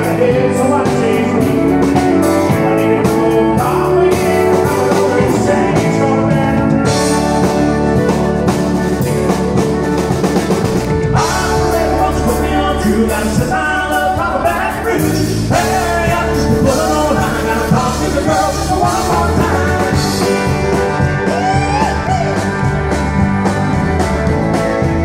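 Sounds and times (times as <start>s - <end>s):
man singing: 0.0s - 8.1s, 11.1s - 22.5s
drum kit: 0.0s - 25.0s
electric guitar: 0.0s - 25.0s
keyboard: 0.0s - 25.0s.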